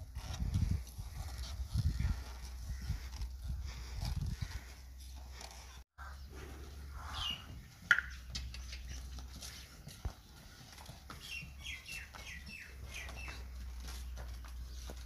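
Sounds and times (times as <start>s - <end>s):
hoof steps: 0.0s - 15.0s
small birds chirping: 5.6s - 10.3s, 11.0s - 15.0s.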